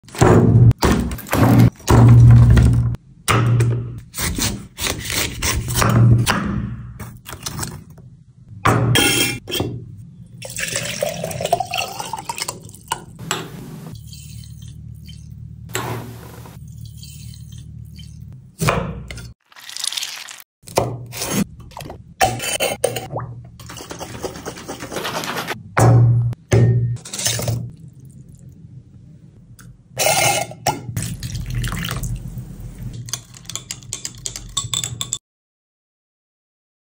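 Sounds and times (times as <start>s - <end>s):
water pouring into glass jar: 10.4s - 12.8s, 31.0s - 32.2s.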